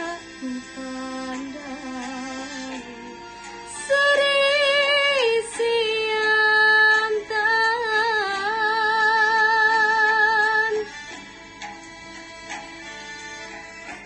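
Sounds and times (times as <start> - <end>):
woman singing with vibrato: 0.0 - 10.9
instrumental accompaniment: 0.0 - 14.0.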